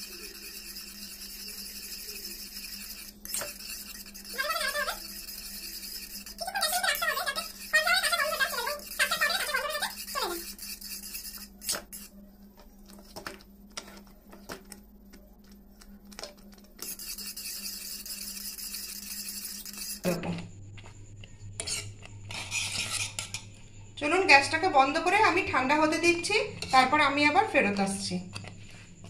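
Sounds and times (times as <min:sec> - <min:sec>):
whisk stirring in pan: 0:00.0 - 0:12.1, 0:16.6 - 0:20.2.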